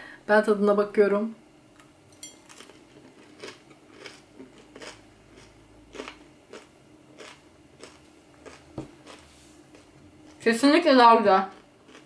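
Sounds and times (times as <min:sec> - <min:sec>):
chewing crunches: 0:02.5 - 0:10.4, 0:11.5 - 0:12.0.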